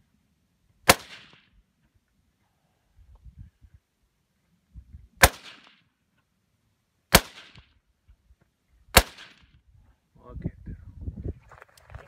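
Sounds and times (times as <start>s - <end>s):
rifle shots with echo: 0.9s - 1.5s, 5.2s - 5.8s, 7.1s - 7.7s, 8.9s - 9.5s.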